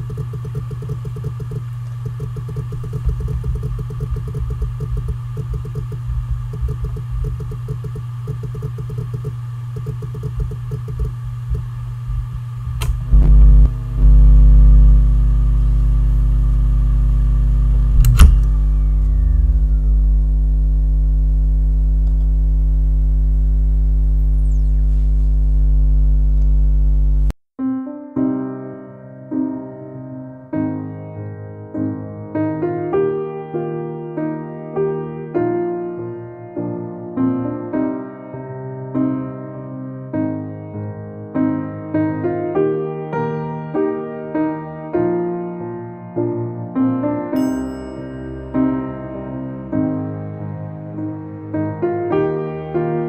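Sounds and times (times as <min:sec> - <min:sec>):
hard drive seek chatter: 0:00.0 - 0:26.6
hard drive humming: 0:00.0 - 0:27.4
hard drive spinning down: 0:00.0 - 0:27.4
sharp click: 0:12.8 - 0:13.4, 0:17.9 - 0:19.7
piano music: 0:27.6 - 0:53.0.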